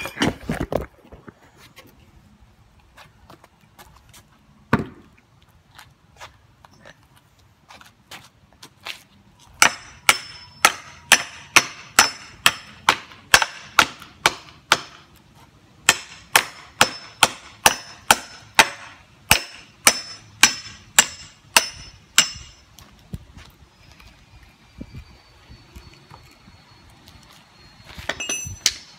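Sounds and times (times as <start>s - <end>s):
hatchet chopping wooden post: 9.6s - 15.2s, 15.8s - 22.6s.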